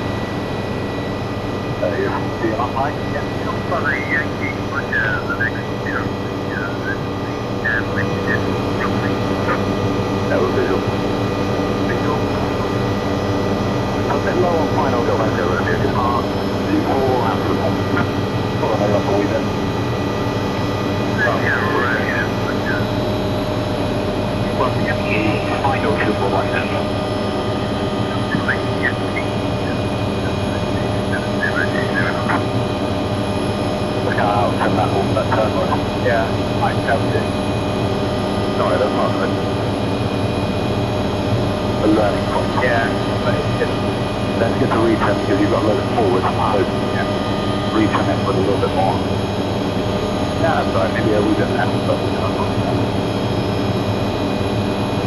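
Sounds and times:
helicopter cabin drone: 0:00.0 - 0:55.0
faint high warbles: 0:01.8 - 0:10.9, 0:21.2 - 0:22.9.

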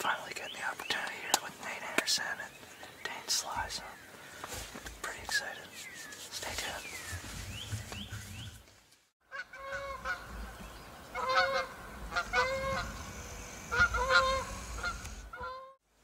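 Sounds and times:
geese honking: 0:09.3 - 0:15.8.

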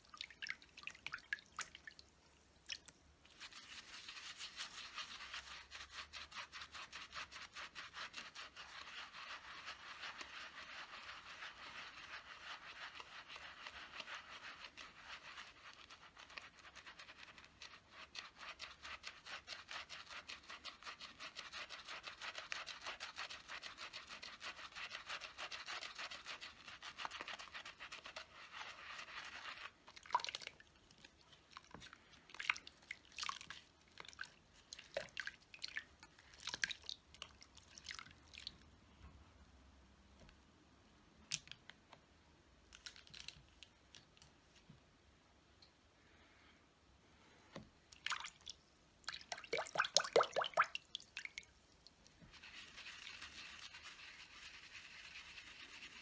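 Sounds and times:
water splashes and drips: 0:00.0 - 0:05.5, 0:29.9 - 0:38.7, 0:47.9 - 0:52.3
brush scrubbing on silicone pad: 0:03.2 - 0:37.9, 0:52.0 - 0:56.0.

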